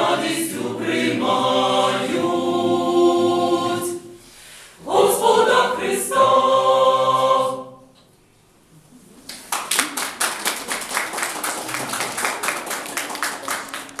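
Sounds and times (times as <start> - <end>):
choir singing a cappella: 0.0 - 8.0
audience applause: 9.4 - 14.0.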